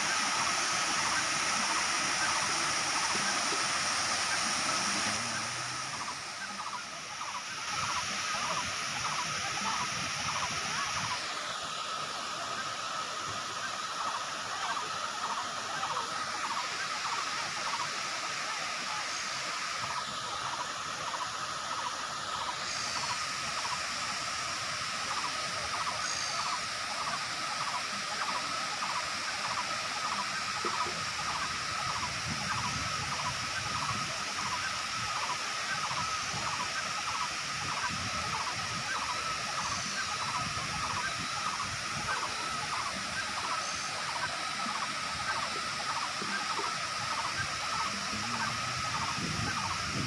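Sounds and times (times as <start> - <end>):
faint chirps: 0.0 - 50.0
waterfall rushing: 0.0 - 50.0
pulsing high tone: 37.7 - 50.0.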